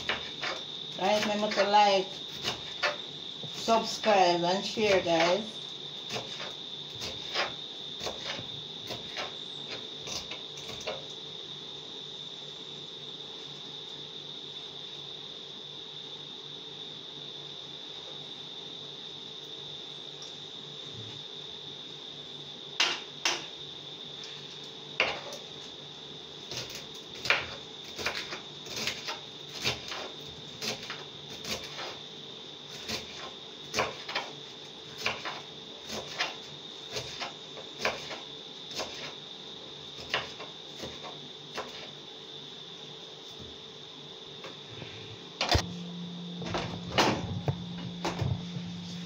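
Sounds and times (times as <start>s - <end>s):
knife chopping on wooden board: 0.0s - 1.7s, 6.1s - 9.4s
faint high-pitched whine: 44.7s - 49.0s.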